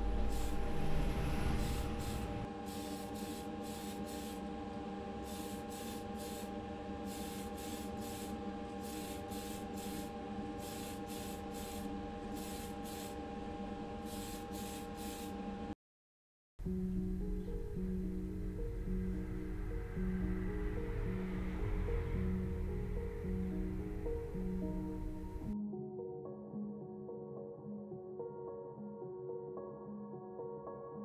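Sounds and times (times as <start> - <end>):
steady hum: 0.0 - 15.7
spray can hissing bursts: 0.3 - 0.5, 2.0 - 4.4, 5.2 - 13.2, 14.0 - 15.3.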